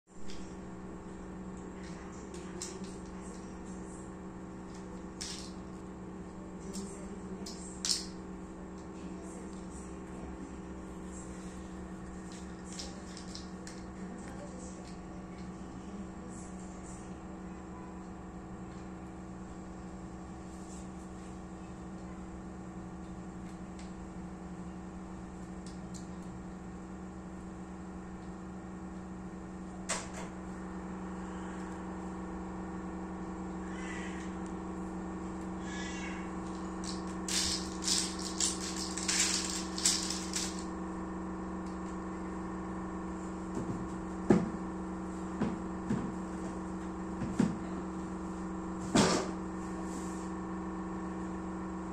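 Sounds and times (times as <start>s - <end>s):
steady hum: 0.1s - 51.9s
plastic building blocks clicking: 36.5s - 40.7s.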